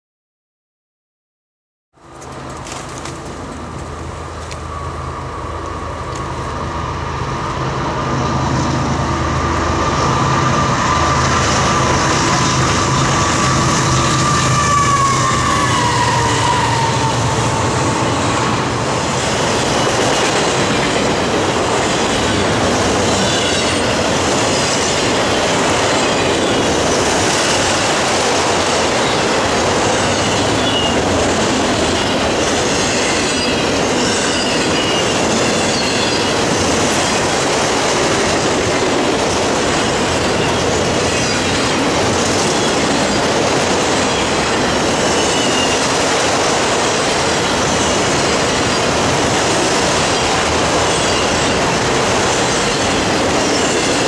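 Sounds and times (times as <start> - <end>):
diesel locomotive engine drone: 2.0 - 54.0
rail cars rumbling past: 2.0 - 54.0
wheel squeal: 30.0 - 31.1, 32.7 - 36.4, 45.0 - 45.9, 50.2 - 51.8.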